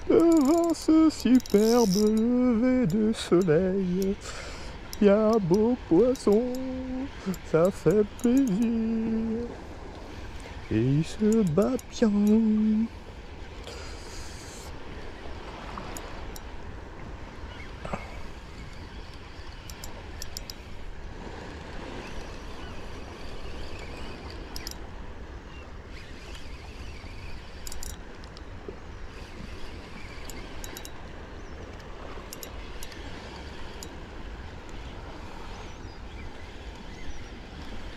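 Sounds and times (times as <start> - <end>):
short high ticks: 0.0 - 9.5, 10.2 - 12.9, 18.6 - 20.7, 21.4 - 24.8, 25.9 - 28.5, 29.1 - 34.0
sea water washing: 0.0 - 37.9
wind rumbling on microphone: 0.0 - 37.9.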